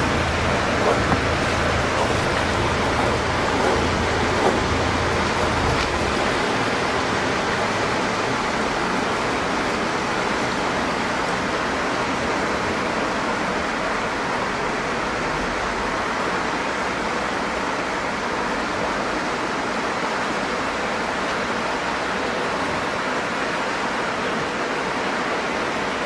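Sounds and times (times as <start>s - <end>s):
motorboat engine hum: 0.0s - 13.3s
water rushing: 0.0s - 26.0s.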